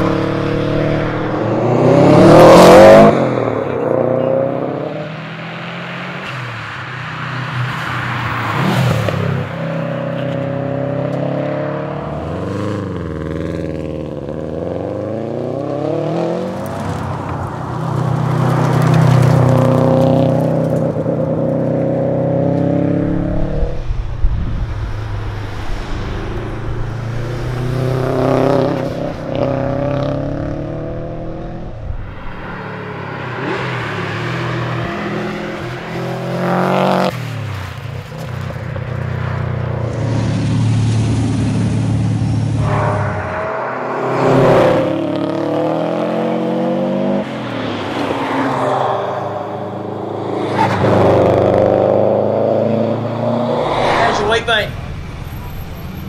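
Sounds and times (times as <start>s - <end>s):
car engine accelerating past: 39.3s - 56.0s.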